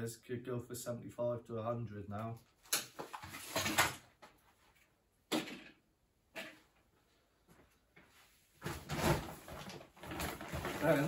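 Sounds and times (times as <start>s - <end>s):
rustling and bumps: 8.6s - 11.0s.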